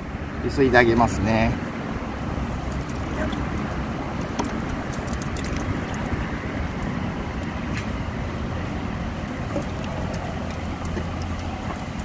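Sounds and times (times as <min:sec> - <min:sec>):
wind noise on microphone: 0:01.6 - 0:12.0
water sloshing in a metal bowl: 0:02.4 - 0:07.1, 0:09.2 - 0:12.0.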